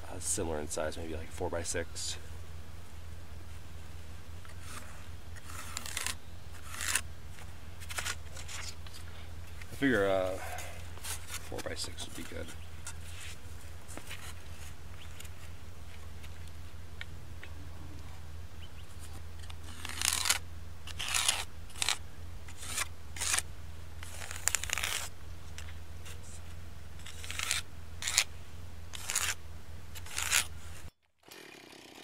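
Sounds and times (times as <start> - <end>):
marking tool scraping wood: 4.5 - 8.8, 19.0 - 23.4, 24.0 - 28.3, 28.9 - 29.4, 30.0 - 30.9.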